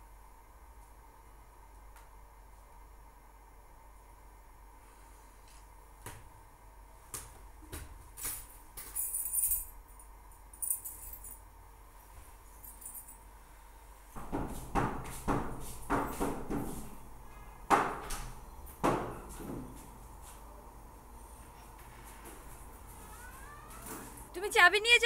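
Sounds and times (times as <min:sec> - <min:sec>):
knocks and scuffs: 0:07.0 - 0:08.9.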